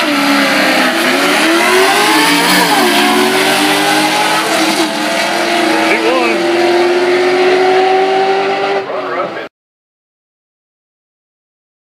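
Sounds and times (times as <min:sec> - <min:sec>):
drag cars accelerating: 0:00.0 - 0:09.5.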